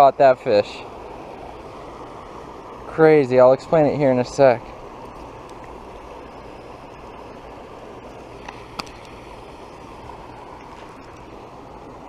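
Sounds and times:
small waterfall rushing: 0.0 - 12.0.

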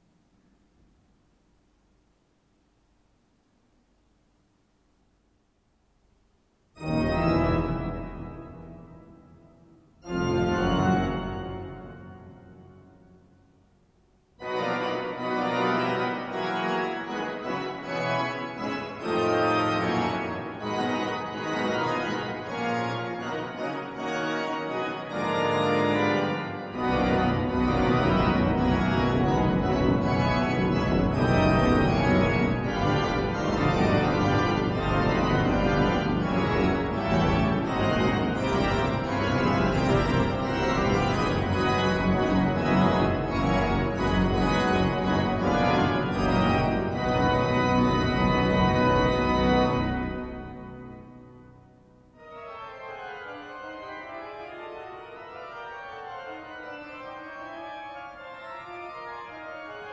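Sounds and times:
deep organ pedal bass: 6.8 - 9.4, 14.5 - 51.3
pipe organ chords: 6.8 - 13.5, 14.4 - 59.9.

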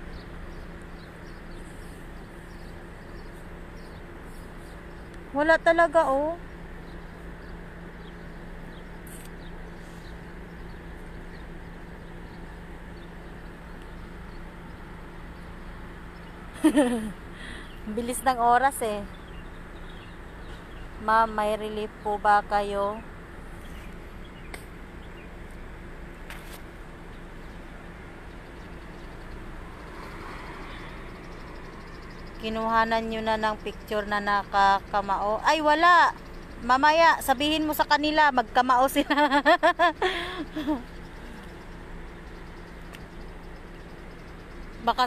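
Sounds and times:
traffic hum: 0.0 - 45.0
faint bird chirps: 27.0 - 38.7, 40.3 - 45.0
car passing close by: 29.6 - 32.1.

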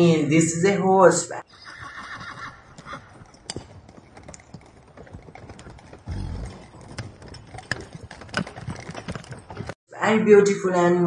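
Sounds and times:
horses grazing: 1.4 - 9.8.

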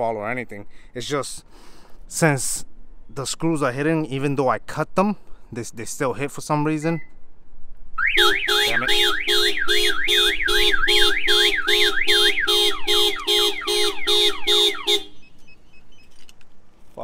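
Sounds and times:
car alarm siren wailing: 8.0 - 15.6.

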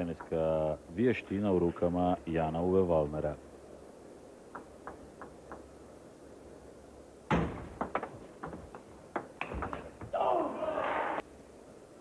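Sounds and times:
ping pong ball clicking: 4.5 - 5.7, 7.8 - 10.0
loud thud: 7.3 - 8.2.

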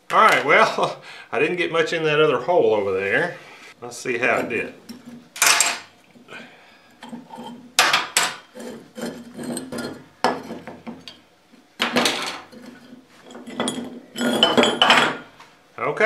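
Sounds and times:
metal mold and clamps clanking: 4.3 - 5.9, 7.0 - 11.2, 11.8 - 15.3
metal rattling and scraping: 4.3 - 5.9, 7.0 - 11.2, 11.9 - 15.3.

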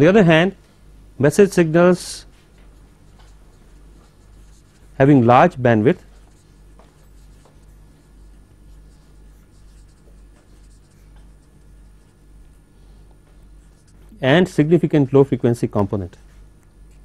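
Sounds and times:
low room hum: 0.0 - 17.0
pen scratching while writing: 2.8 - 5.2, 6.1 - 12.3, 13.6 - 14.0.

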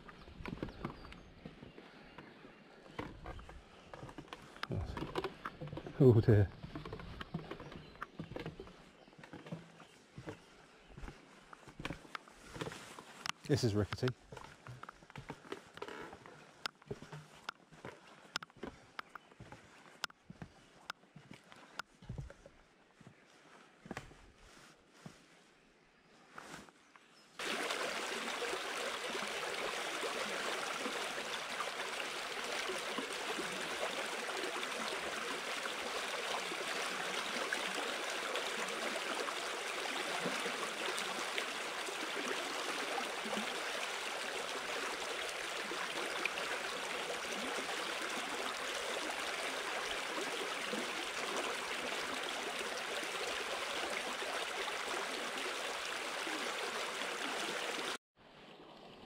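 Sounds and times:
river babbling over stones: 27.4 - 58.0.

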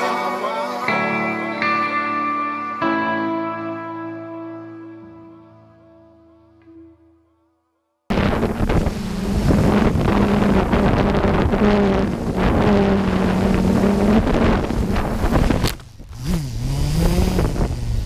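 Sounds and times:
low tone dipping and rising: 8.1 - 17.2
electric motor and propeller: 8.1 - 18.0
wind rush: 8.1 - 18.0.

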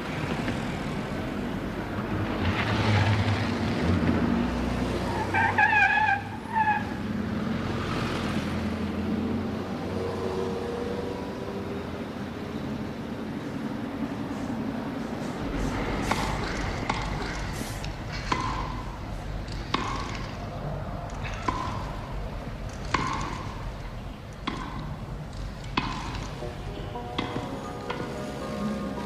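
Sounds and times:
tennis ball struck by rackets: 18.2 - 20.2, 21.4 - 21.9, 22.9 - 23.6, 24.4 - 24.9, 25.7 - 26.4, 27.0 - 28.2.

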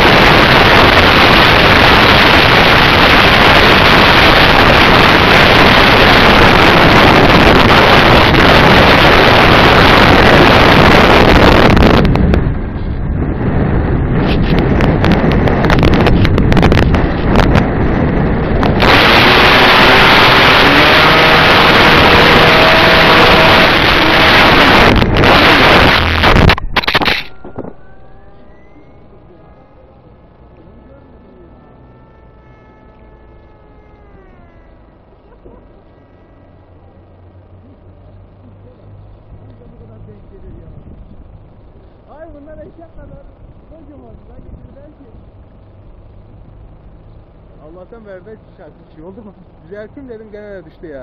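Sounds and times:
wind and propeller rush: 0.0 - 30.9
plane hitting the ground: 0.0 - 35.9.

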